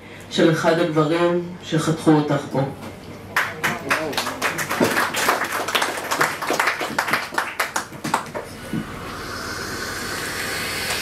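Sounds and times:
audience clapping: 3.3 - 8.6
steady hiss: 8.8 - 11.0.

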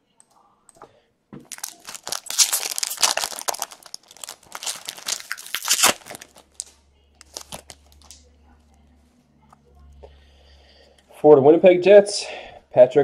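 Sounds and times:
foil wrapper tearing and crinkling: 1.5 - 8.2.

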